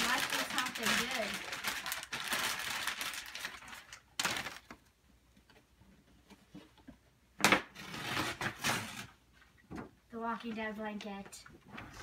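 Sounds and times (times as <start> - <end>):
wrapping paper crinkling: 0.0 - 4.9.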